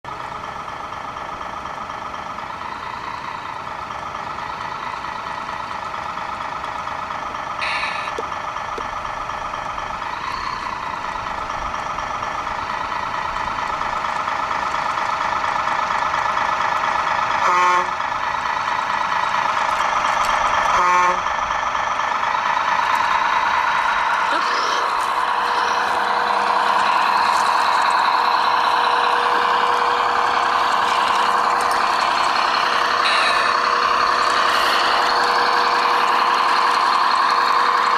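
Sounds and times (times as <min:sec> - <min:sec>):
toy truck motor whine: 0:07.6 - 0:08.9, 0:09.7 - 0:21.4, 0:22.3 - 0:37.9
toy truck horn blasts: 0:17.4 - 0:18.0, 0:20.7 - 0:21.3.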